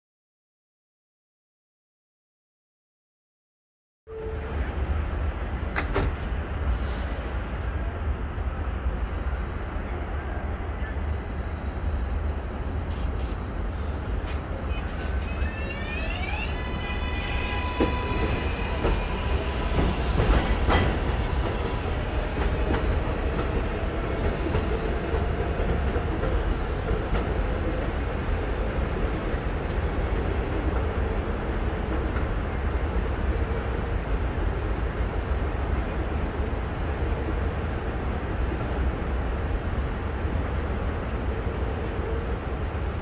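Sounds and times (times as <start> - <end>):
train rumble: 4.1 - 43.0
train wheels clacking: 17.8 - 27.4.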